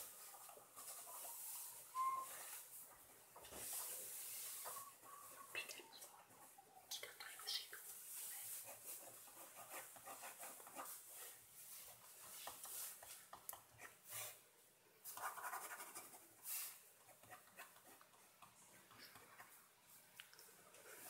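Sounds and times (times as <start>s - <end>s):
pen scratching on paper: 8.6s - 10.9s, 15.2s - 16.2s.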